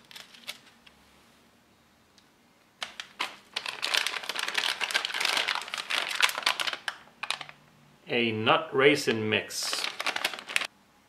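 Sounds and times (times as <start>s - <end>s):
food pouches crinkling: 0.0s - 0.8s, 2.8s - 7.6s, 9.6s - 10.7s.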